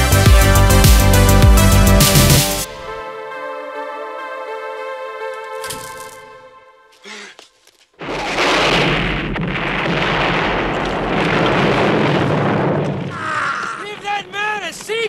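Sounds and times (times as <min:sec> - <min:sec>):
rocket explosion: 0:08.0 - 0:14.4.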